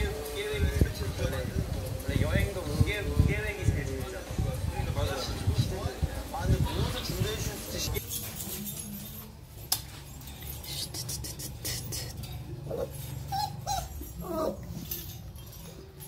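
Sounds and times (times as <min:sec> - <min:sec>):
puppies whining: 0:11.8 - 0:16.0.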